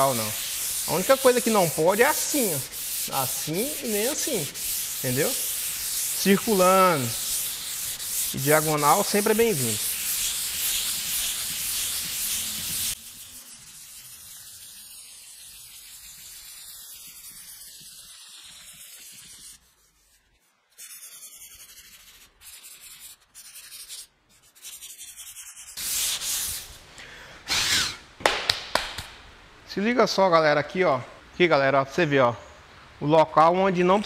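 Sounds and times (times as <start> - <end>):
hand sanding rubbing strokes: 0.0 - 26.8.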